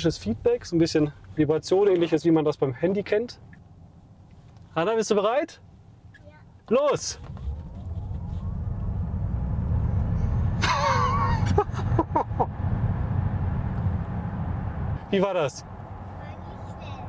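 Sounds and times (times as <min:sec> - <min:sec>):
road and tyre rumble: 0:00.0 - 0:17.0
person laughing: 0:10.6 - 0:12.5.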